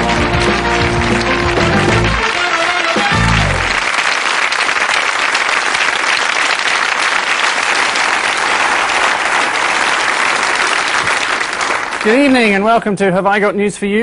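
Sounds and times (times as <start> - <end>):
theme tune chord: 0.0 - 3.8
audience applauding: 0.0 - 12.9.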